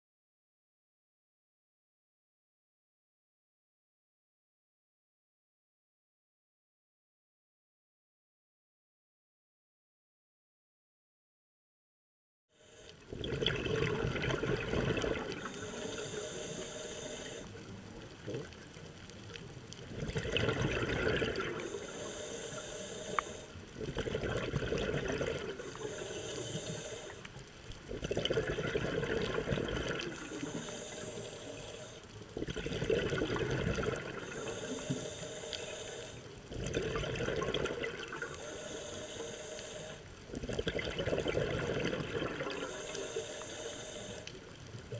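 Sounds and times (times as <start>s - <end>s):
rush of exhaled bubbles: 13.0s - 16.6s, 19.8s - 21.9s, 23.3s - 27.2s, 27.8s - 38.8s, 40.3s - 43.3s
regulator inhalation hiss: 15.0s - 17.7s, 21.5s - 23.7s, 25.4s - 27.5s, 30.0s - 32.3s, 34.0s - 36.5s, 38.1s - 40.2s, 42.4s - 44.5s.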